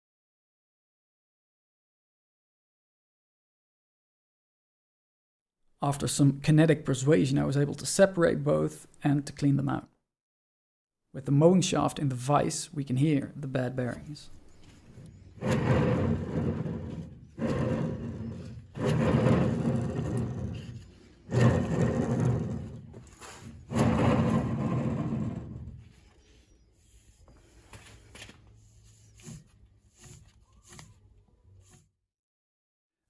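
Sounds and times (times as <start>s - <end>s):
worn bearings grinding: 15.4s - 25.7s.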